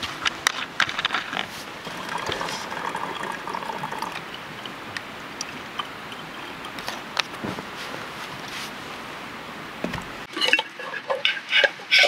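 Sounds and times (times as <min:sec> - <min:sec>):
water being poured: 0:01.8 - 0:04.8, 0:10.3 - 0:11.8.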